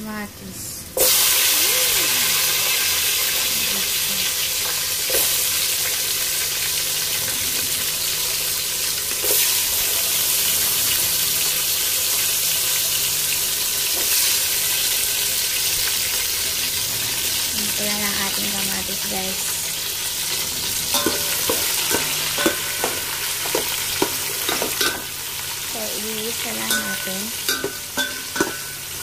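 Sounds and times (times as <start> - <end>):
tomato sizzling in hot oil: 0.9 - 29.0.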